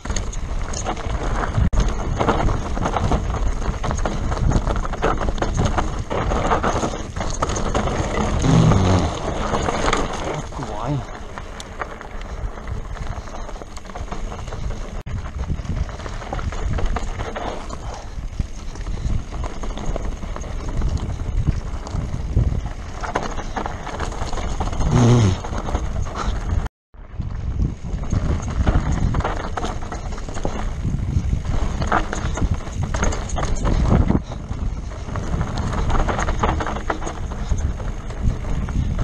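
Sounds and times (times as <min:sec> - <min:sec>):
tyres crunching over gravel: 0:00.0 - 0:26.6
bike rattling and knocking: 0:00.0 - 0:39.0
wind rumbling on microphone: 0:00.0 - 0:39.0.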